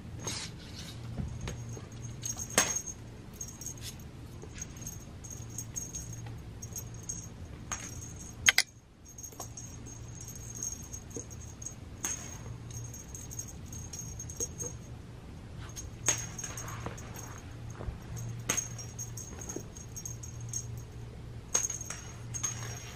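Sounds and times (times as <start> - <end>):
steady low hum: 0.0 - 22.9
toy jingling and rattling: 1.3 - 14.9, 15.7 - 22.9.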